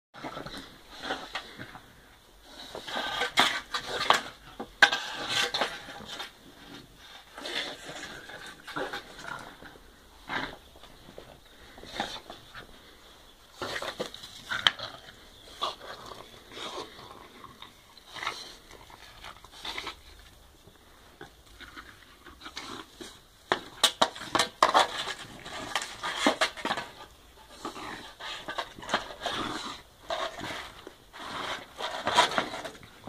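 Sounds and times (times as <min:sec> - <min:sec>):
dog chewing broom bristles: 0:13.6 - 0:33.0.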